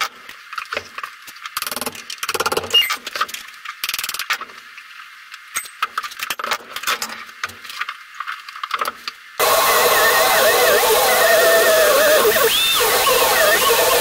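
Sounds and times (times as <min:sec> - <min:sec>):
grinder cutting steel: 0:09.4 - 0:14.0.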